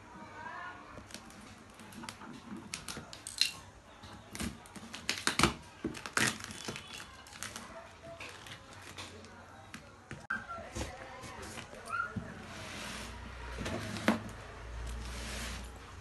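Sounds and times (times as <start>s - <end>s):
scissors cutting cardboard and plastic: 4.3s - 9.2s.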